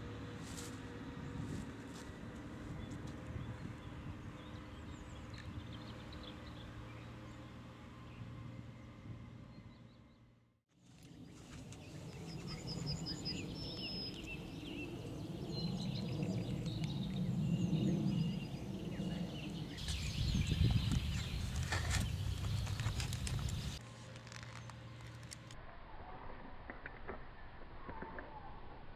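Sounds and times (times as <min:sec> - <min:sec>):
small birds chirping: 0:11.0 - 0:23.8
steady low rumble: 0:11.2 - 0:24.0.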